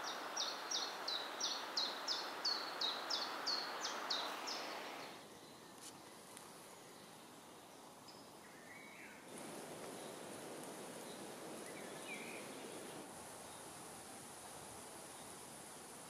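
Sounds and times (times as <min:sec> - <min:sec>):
bird chirps: 0:00.0 - 0:05.8
outdoor hiss: 0:00.0 - 0:16.0.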